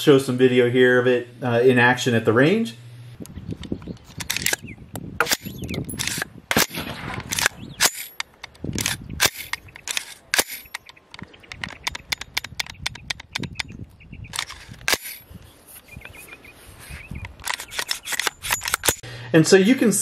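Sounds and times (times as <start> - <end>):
rifle charging handle clicking: 17.4 - 19.0.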